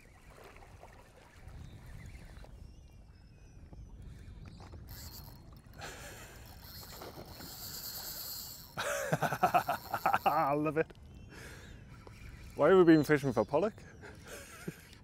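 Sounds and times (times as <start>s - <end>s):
shallow water sloshing: 0.0s - 3.1s
wind rumbling on microphone: 0.0s - 13.1s.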